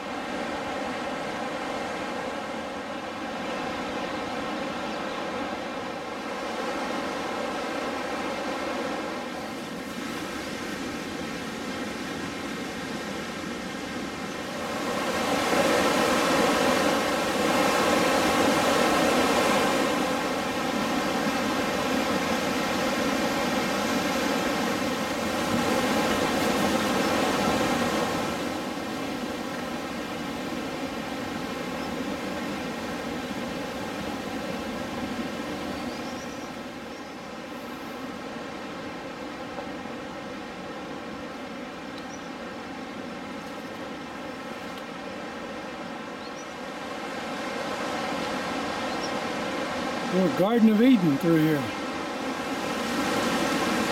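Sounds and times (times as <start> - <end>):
whitewater river rushing: 4.7 - 35.6, 37.4 - 53.9.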